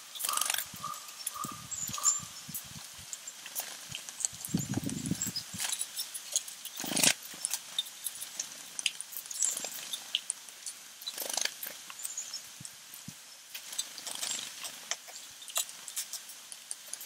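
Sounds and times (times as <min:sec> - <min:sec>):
birds chirping: 0:00.0 - 0:12.6.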